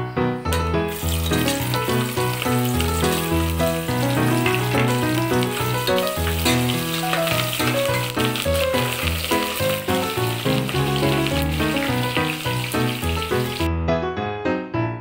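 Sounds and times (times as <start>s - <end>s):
background music: 0.0s - 15.0s
onions sizzling in hot oil: 0.9s - 13.7s.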